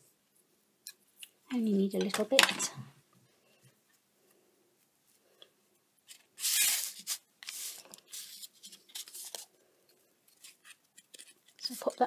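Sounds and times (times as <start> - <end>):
ribbon rustling: 3.6 - 12.0.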